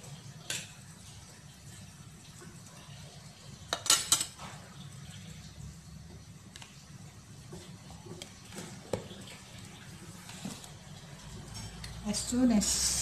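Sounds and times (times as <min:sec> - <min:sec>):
utensils clinking: 0:03.7 - 0:04.4, 0:10.6 - 0:12.3.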